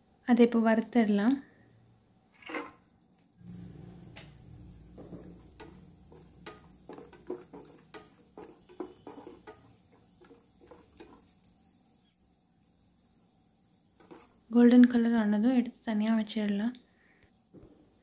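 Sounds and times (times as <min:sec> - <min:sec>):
wooden spatula scraping pan: 0:02.4 - 0:02.8, 0:05.0 - 0:11.3, 0:14.0 - 0:14.5.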